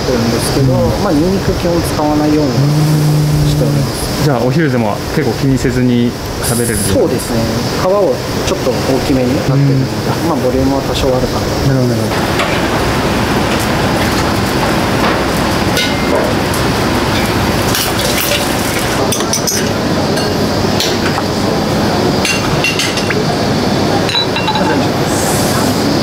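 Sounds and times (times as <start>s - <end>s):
metal utensils clinking: 17.2s - 20.4s.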